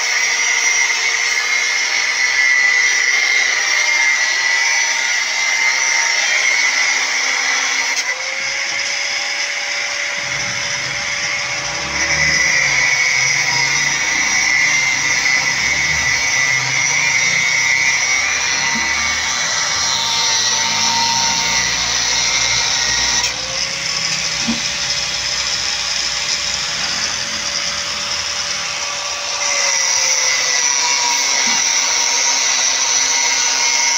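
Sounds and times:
angle grinder cutting steel: 0:00.0 - 0:33.9.

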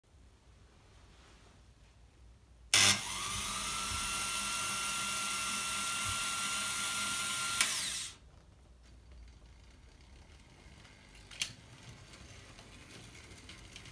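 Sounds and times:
high-pitched mechanical whir: 0:02.8 - 0:08.2.

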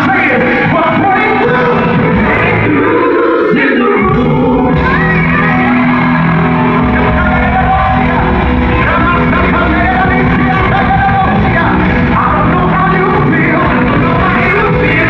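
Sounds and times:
live gospel music: 0:00.0 - 0:15.0
people shouting: 0:04.6 - 0:11.3.

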